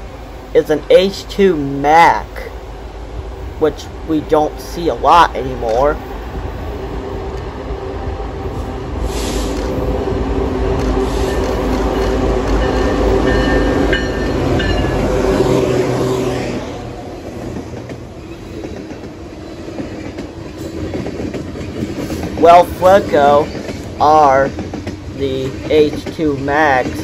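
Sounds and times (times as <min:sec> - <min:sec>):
diesel locomotive engines: 0:00.0 - 0:27.0
freight cars rolling on rails: 0:00.0 - 0:27.0.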